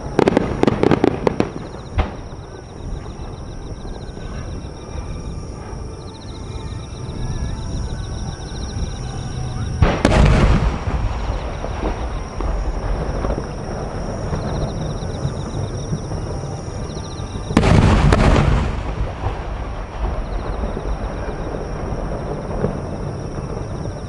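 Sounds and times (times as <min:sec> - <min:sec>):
firework shells booming: 0:00.0 - 0:04.5, 0:09.8 - 0:16.2, 0:17.4 - 0:24.0
rolling rumble and crackle: 0:00.0 - 0:24.0.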